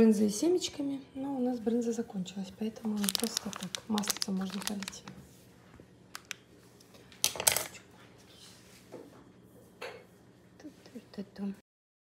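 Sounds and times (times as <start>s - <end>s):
plastic pouch crinkling: 2.8s - 5.2s, 6.1s - 6.5s.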